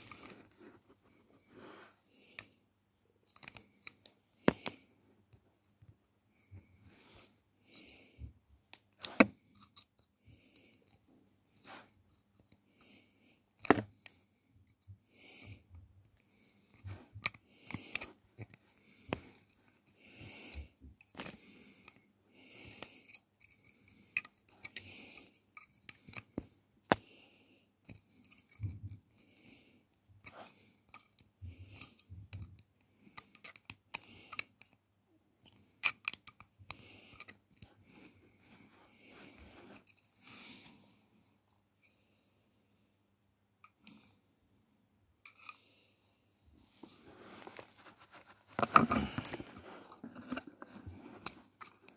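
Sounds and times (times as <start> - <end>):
rustling handling noises: 46.5 - 51.9.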